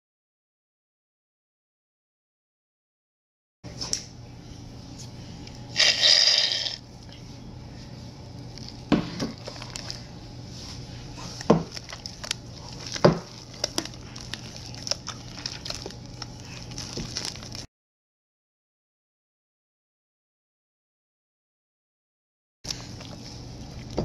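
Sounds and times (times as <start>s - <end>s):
slime squelching and popping: 11.6s - 17.7s.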